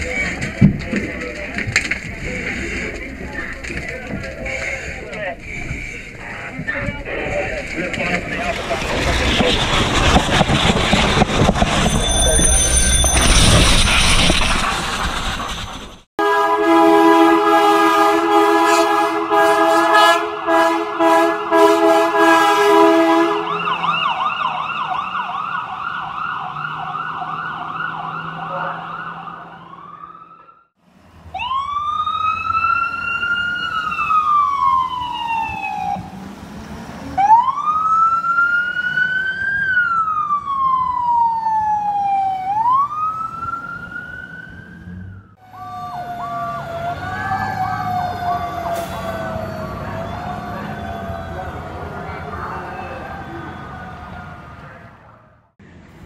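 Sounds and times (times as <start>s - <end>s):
air horn blasts: 16.2s - 23.8s
wail siren: 16.2s - 30.7s, 31.3s - 36.2s, 37.2s - 55.4s
yelp siren: 16.7s - 30.7s, 31.3s - 36.1s, 37.2s - 55.4s.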